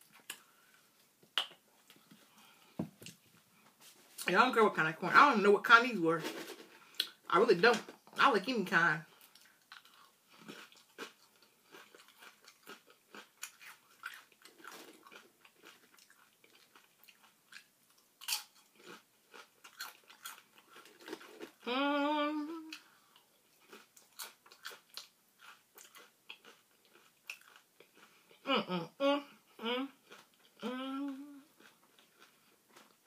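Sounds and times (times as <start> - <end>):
person crunching chips: 9.2 - 21.7, 23.6 - 28.1
person humming mmm: 21.6 - 22.9, 28.4 - 31.6.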